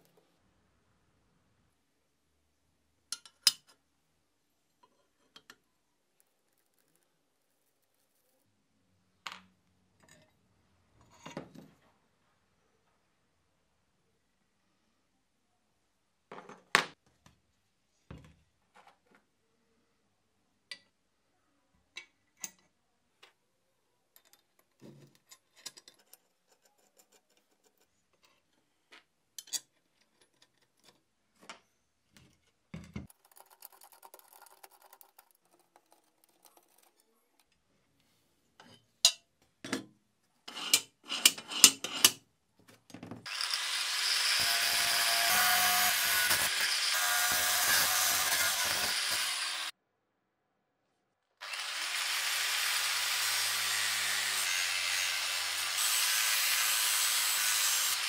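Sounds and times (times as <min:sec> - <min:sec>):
tools and metal clicking on workbench: 0:03.1 - 0:03.8, 0:04.8 - 0:05.6, 0:22.0 - 0:22.7, 0:24.1 - 0:31.6, 0:38.6 - 0:42.2
power tool running: 0:43.3 - 0:49.7, 0:51.4 - 0:58.0.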